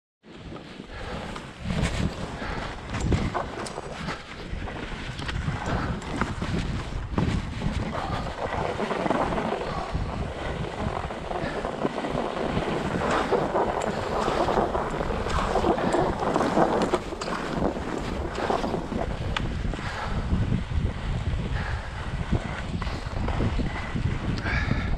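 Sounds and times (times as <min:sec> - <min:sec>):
skis scraping on snow: 0:00.3 - 0:24.9
wind on microphone: 0:00.4 - 0:24.9.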